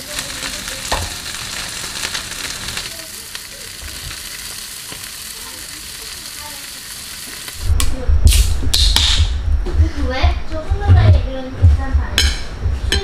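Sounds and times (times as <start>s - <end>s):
shrimp sizzling in butter: 0.0s - 7.7s.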